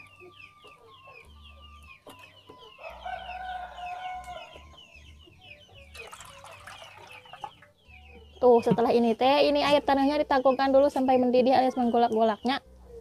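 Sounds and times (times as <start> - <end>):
rooster crowing: 2.8 - 4.8.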